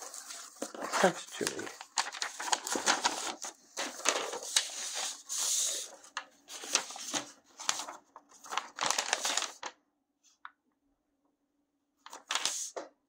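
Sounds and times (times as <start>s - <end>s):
paper and cardboard rustling: 0.0s - 9.7s, 12.1s - 12.8s.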